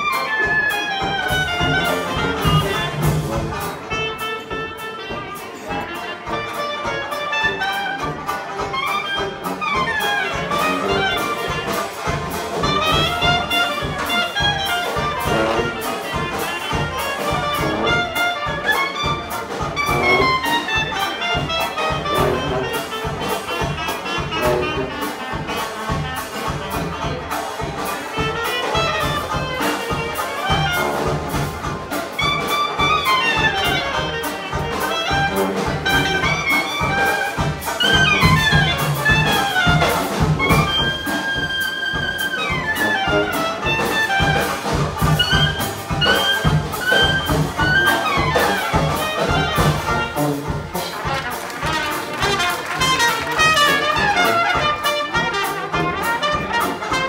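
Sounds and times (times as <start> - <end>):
banjo: 0.0 - 57.0
clarinet: 0.0 - 57.0
drum beat: 0.0 - 57.0
trumpet: 0.0 - 57.0.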